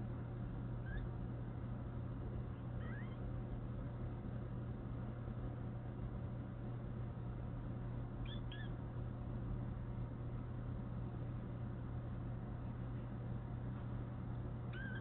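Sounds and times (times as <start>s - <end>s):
steady low hum: 0.0s - 15.0s
kitten chirping: 0.8s - 1.1s, 2.8s - 3.2s, 8.2s - 8.8s, 14.7s - 15.0s.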